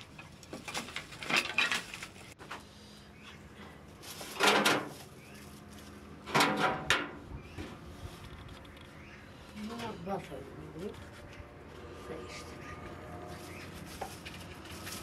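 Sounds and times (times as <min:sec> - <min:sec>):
sheet-metal grill rattling and scraping: 0:00.0 - 0:02.4, 0:04.2 - 0:05.1, 0:06.2 - 0:07.2.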